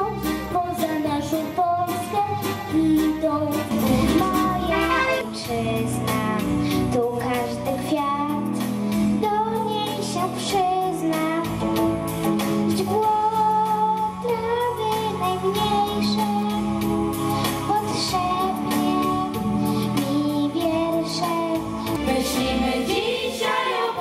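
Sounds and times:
girl singing into microphone: 0:00.0 - 0:11.6, 0:12.7 - 0:16.7, 0:17.7 - 0:22.6.

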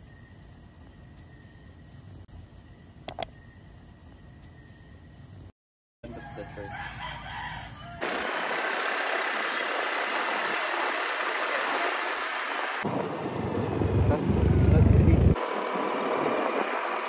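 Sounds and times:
road noise: 0:06.2 - 0:17.0.

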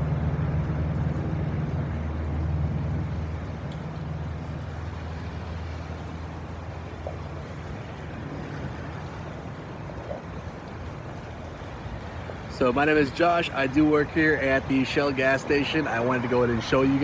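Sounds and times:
heavy rain on wet pavement: 0:00.0 - 0:17.0.

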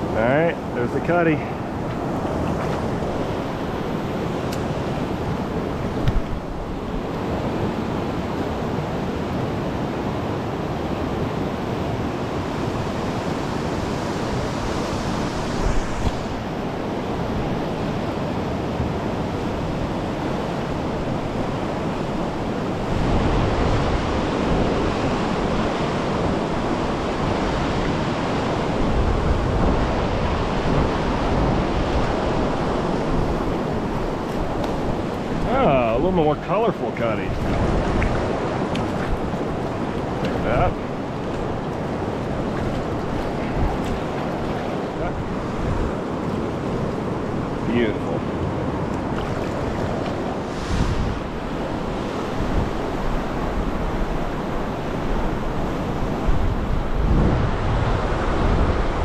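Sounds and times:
river rushing over rocks: 0:37.2 - 0:59.0.

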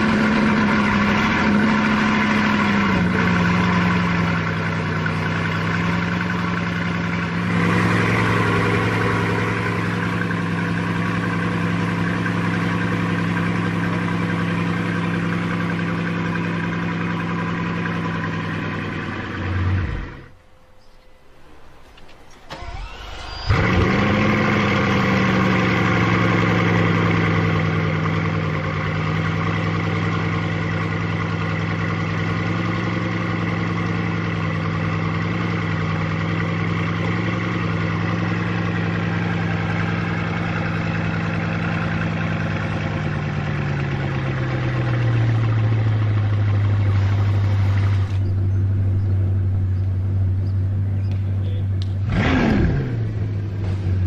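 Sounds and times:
car engine idling: 0:00.0 - 0:54.0
engine starting and revving: 0:22.2 - 0:28.4, 0:51.8 - 0:54.0.

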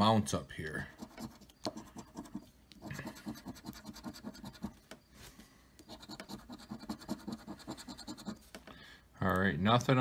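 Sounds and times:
scratching lottery ticket: 0:00.8 - 0:04.9, 0:05.8 - 0:08.5.

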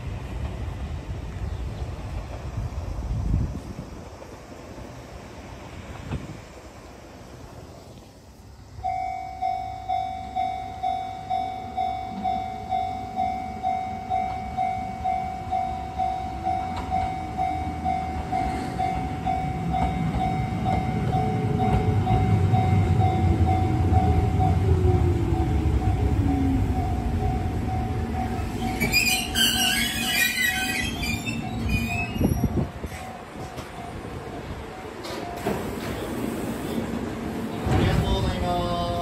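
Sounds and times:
train rumble with motor whine: 0:00.0 - 0:08.8, 0:09.8 - 0:39.0
level crossing warning bell: 0:08.8 - 0:29.8.

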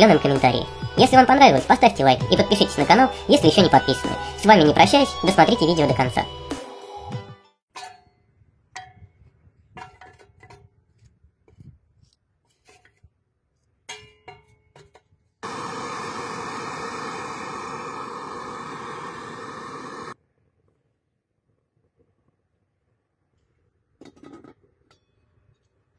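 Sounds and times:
loud steady rushing noise: 0:15.4 - 0:20.2.

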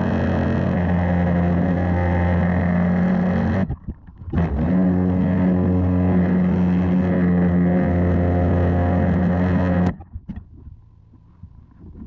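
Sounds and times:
pressure washer running: 0:00.0 - 0:03.6, 0:04.4 - 0:09.9.

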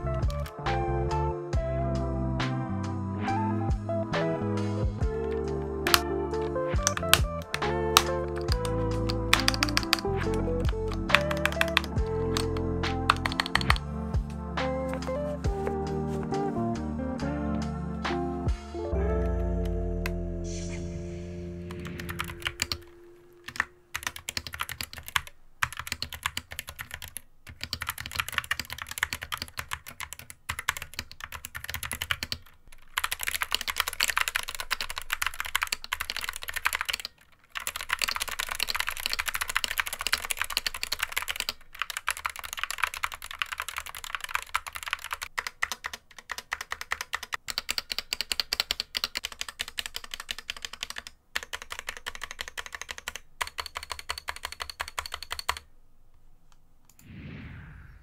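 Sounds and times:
keyboard key clacks: 0:05.2 - 0:13.9.

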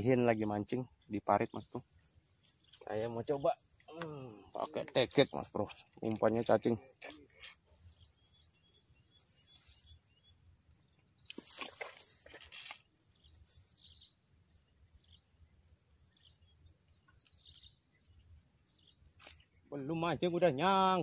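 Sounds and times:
faint chirps: 0:00.0 - 0:21.0
insects droning: 0:00.0 - 0:21.0
brief rustle: 0:11.3 - 0:12.8.

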